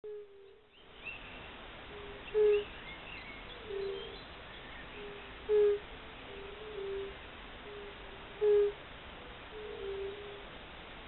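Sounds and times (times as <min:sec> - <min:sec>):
faint bird chirps: 0:00.1 - 0:10.4
toads hooting: 0:09.6 - 0:10.4.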